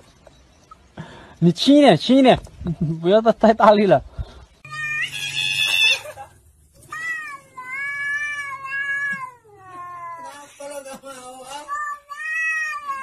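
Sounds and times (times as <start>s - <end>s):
cat meowing: 4.6s - 6.0s, 6.8s - 10.6s, 11.5s - 13.0s.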